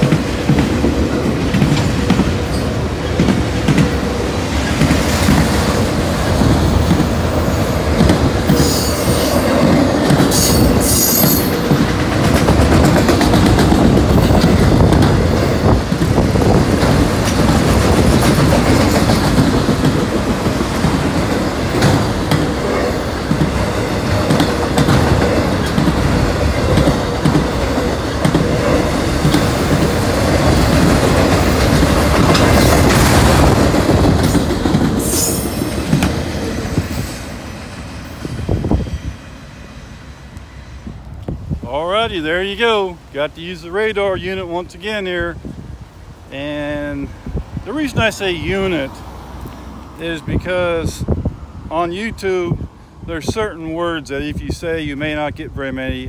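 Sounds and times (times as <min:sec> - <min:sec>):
freight train wheels clattering: 0:00.0 - 0:39.5
high wheel squeals: 0:10.4 - 0:11.6.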